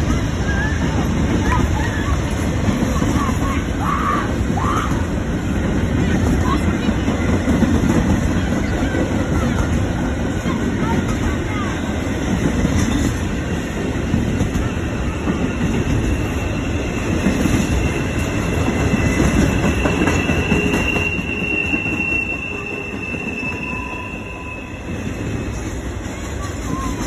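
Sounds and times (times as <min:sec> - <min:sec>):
freight train wheels rumbling: 0:00.0 - 0:27.0
high wheel squeal: 0:14.7 - 0:25.8.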